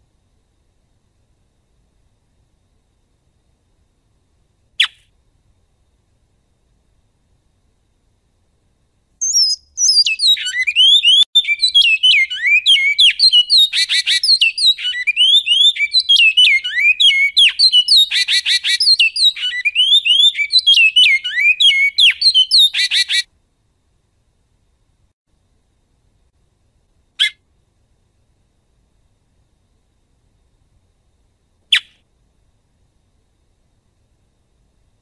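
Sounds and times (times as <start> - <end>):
bird singing whistled notes: 9.2 - 23.2, 31.7 - 32.0.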